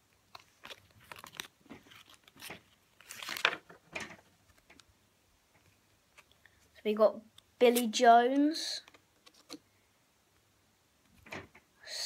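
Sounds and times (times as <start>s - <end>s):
trading cards swishing and rustling: 0.3s - 3.7s.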